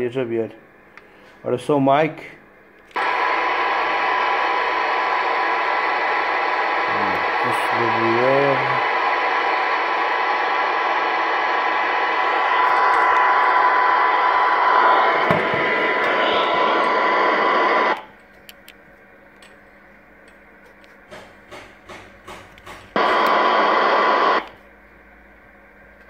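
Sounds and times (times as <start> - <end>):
faint steady whistle: 3.0 - 18.0
radio static hiss: 3.0 - 18.1, 22.9 - 24.6.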